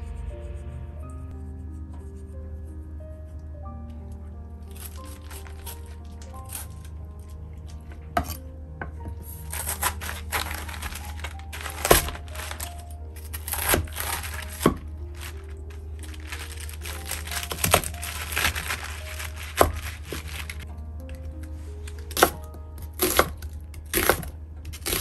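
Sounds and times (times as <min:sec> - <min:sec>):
quiet background music: 0:00.0 - 0:25.0
knife crunching through cabbage: 0:04.7 - 0:08.4, 0:09.4 - 0:20.6, 0:21.8 - 0:25.0.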